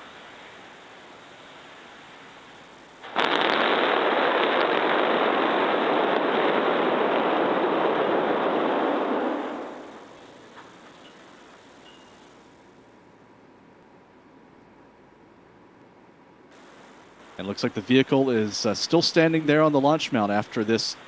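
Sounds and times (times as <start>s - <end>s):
rocket engines roaring: 0.0s - 12.4s, 16.6s - 21.0s
sharp cracks: 3.0s - 11.0s.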